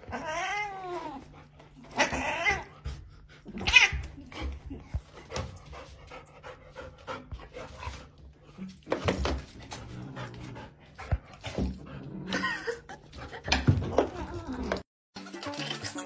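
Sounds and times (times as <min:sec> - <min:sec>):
dog panting: 0:04.3 - 0:08.5, 0:09.6 - 0:12.2.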